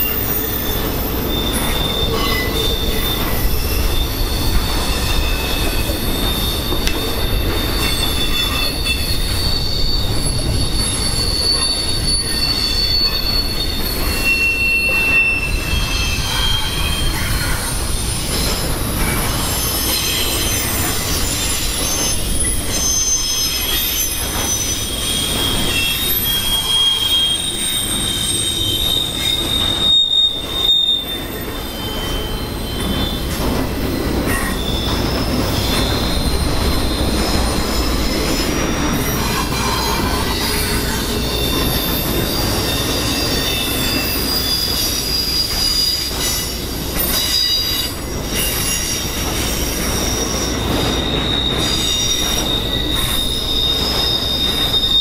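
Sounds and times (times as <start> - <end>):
freight train rumble: 0.0 - 55.0
high wheel squeals: 0.0 - 55.0.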